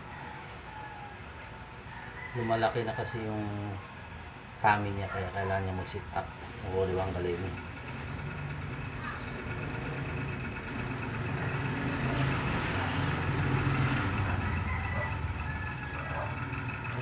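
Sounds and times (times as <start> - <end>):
bee buzzing wings: 6.4 - 8.2.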